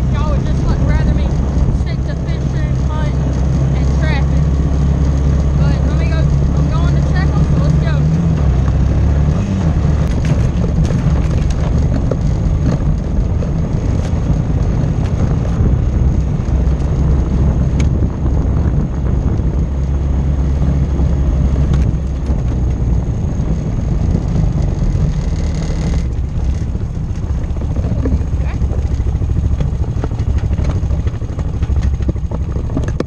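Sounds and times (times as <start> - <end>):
atv engine running: 0.0 - 33.0
sharp knocks and rattles: 4.9 - 18.7, 23.8 - 33.0.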